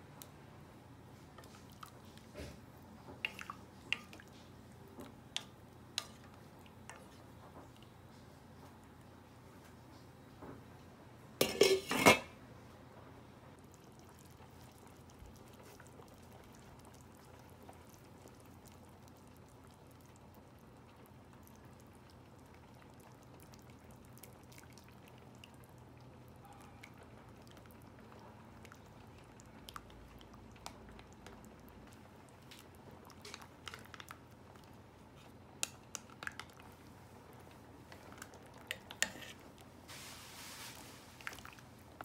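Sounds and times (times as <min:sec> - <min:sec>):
ladle and spoon clinking: 0:11.4 - 0:12.3.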